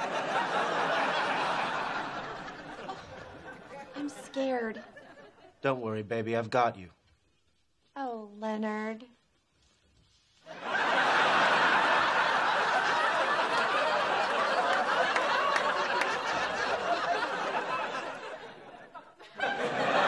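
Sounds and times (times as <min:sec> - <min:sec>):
studio audience laughing: 0:00.0 - 0:05.6, 0:10.5 - 0:20.0
claps and whoops: 0:12.8 - 0:16.6.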